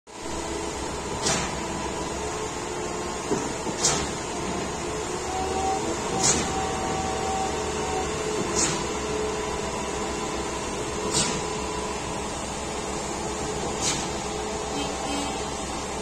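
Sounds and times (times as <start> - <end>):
concrete pump running: 0.2 - 16.0
pump hissing stroke: 11.0 - 16.0.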